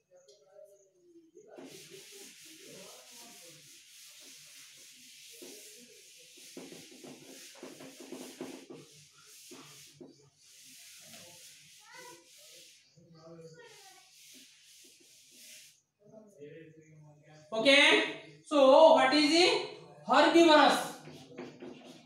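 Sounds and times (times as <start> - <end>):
duster rubbing a chalkboard: 1.5 - 15.8, 20.9 - 22.0.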